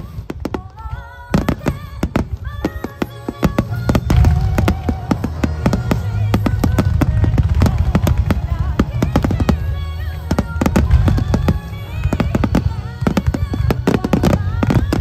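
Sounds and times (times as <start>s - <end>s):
fireworks bangs and crackles: 0.0s - 15.0s
music playing: 0.0s - 15.0s
low rumble: 4.0s - 15.0s.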